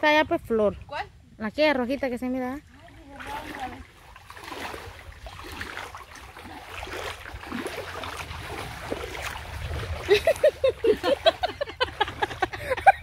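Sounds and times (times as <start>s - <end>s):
person wading through water: 2.6s - 13.0s.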